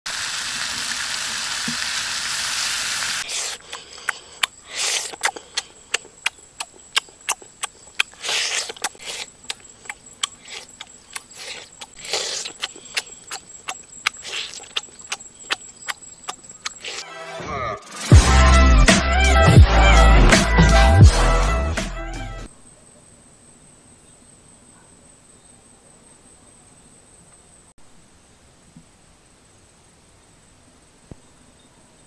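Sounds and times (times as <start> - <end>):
meat sizzling on hot rock: 0.1 - 3.8
chewing and lip smacking: 3.2 - 17.0.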